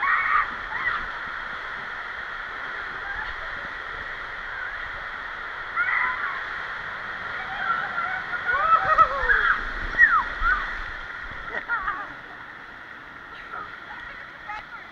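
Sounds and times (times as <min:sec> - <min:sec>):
raft splashing: 0:00.0 - 0:14.9
water rushing and sloshing: 0:00.0 - 0:14.9
riders shrieking and laughing: 0:07.7 - 0:10.7.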